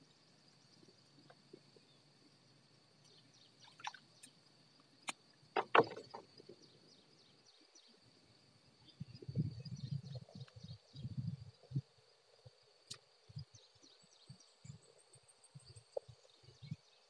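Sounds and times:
insects chirring: 0.0 - 17.0
knocks: 5.6 - 6.2.

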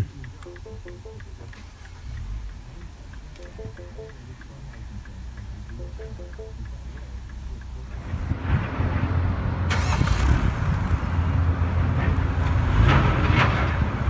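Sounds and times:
car engine idling: 0.0 - 8.3, 9.7 - 10.2.

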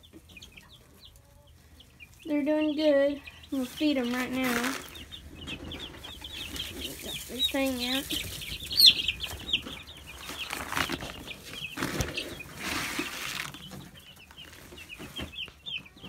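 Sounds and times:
chicks peeping: 0.0 - 16.0
feed bag rustling: 3.6 - 5.0, 10.1 - 13.8.

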